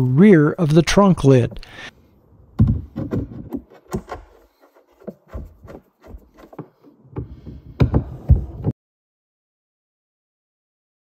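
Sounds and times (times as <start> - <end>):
metal knocking and rubbing on plastic: 2.6 - 8.7.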